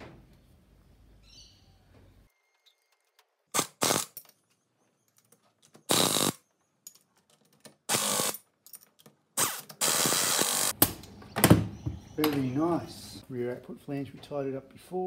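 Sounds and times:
air ratchet bursts: 0:03.6 - 0:04.2, 0:05.9 - 0:06.4, 0:07.9 - 0:08.4, 0:09.4 - 0:10.8.

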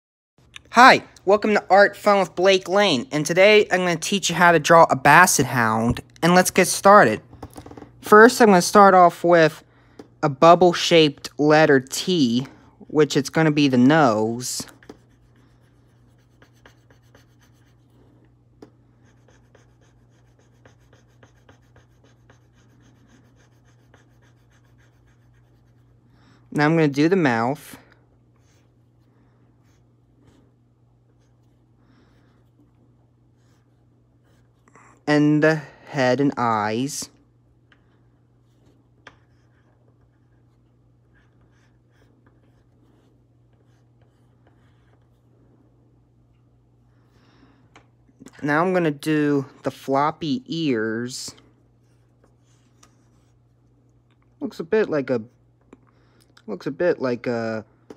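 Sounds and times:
low steady hum: 0:00.4 - 0:57.9
pencil scratching on paper: 0:13.0 - 0:26.0, 0:28.4 - 0:30.4, 0:33.3 - 0:34.6, 0:38.4 - 0:45.3.

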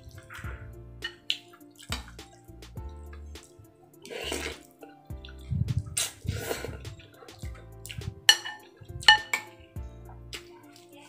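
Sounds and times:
noodles slurped: 0:03.4 - 0:08.1
metal spoon clinking ceramic bowl: 0:08.3 - 0:09.6.

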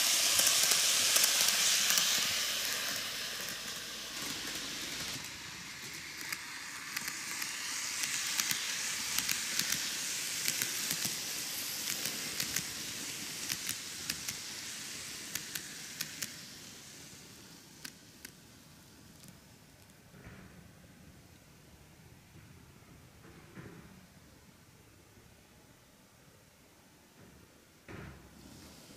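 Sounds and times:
wheels clicking over track joints: 0:00.0 - 0:17.1
model train running gear hiss: 0:00.0 - 0:19.9, 0:28.2 - 0:28.9.

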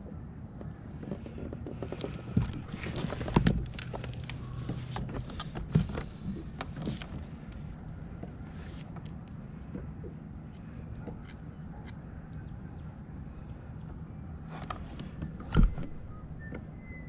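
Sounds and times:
fishing gear clicking and rattling: 0:01.1 - 0:07.9.

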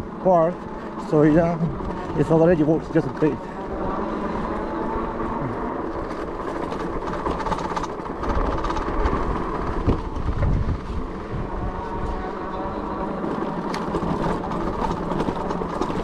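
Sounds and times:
bike tires rumbling on dirt: 0:00.0 - 0:16.0
bike parts rattling: 0:05.3 - 0:11.0.

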